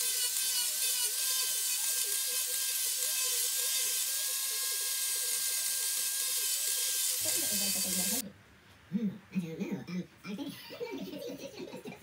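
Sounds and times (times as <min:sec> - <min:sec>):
angle grinder whining: 0:00.0 - 0:08.2.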